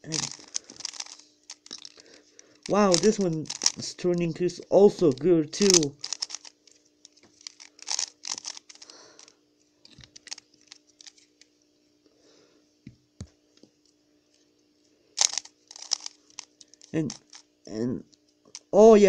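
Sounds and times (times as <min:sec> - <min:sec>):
puzzle cube clicking: 0:00.0 - 0:02.0, 0:02.6 - 0:04.0, 0:04.9 - 0:06.5, 0:07.4 - 0:09.0, 0:15.2 - 0:17.4
plastic cube clatter: 0:00.0 - 0:04.0, 0:04.9 - 0:09.1, 0:09.9 - 0:11.3, 0:15.2 - 0:17.4.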